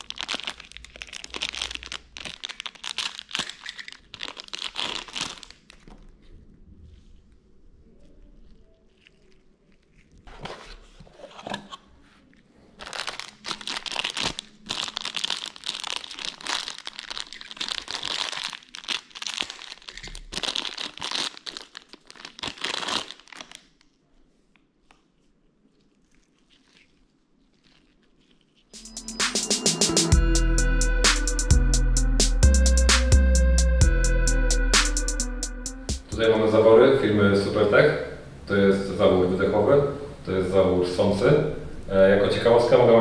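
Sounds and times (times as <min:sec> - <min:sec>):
plastic bags crinkling: 0:00.0 - 0:06.4, 0:12.2 - 0:24.0, 0:24.8 - 0:28.8.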